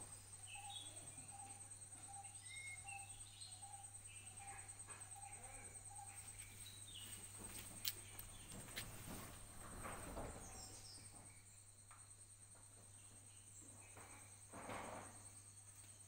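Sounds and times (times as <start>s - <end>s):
bird chirps: 0.0s - 7.2s
insect drone: 0.0s - 16.0s.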